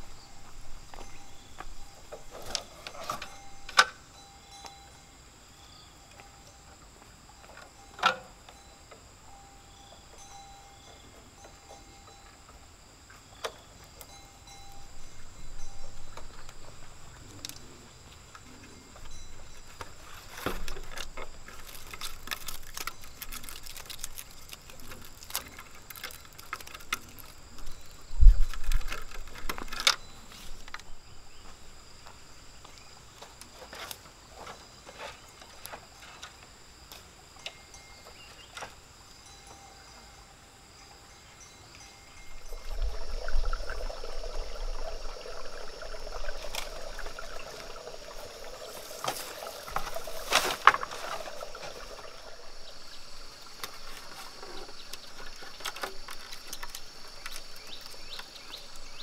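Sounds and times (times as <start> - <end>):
bamboo slats clattering: 2.1 - 4.0, 48.3 - 52.6, 53.2 - 58.8.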